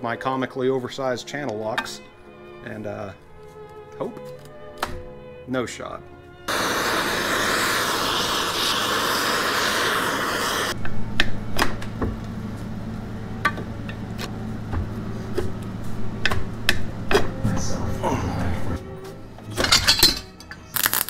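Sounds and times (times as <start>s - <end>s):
gas torch hissing: 6.5s - 10.8s, 20.7s - 21.0s.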